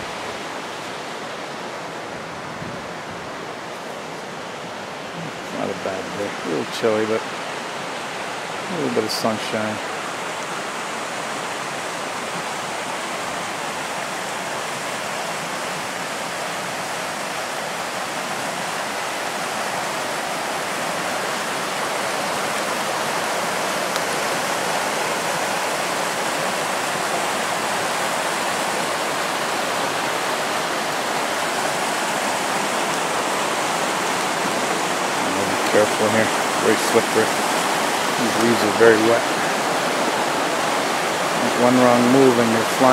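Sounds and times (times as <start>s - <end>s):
river rapids rushing over rocks: 0.0s - 42.9s.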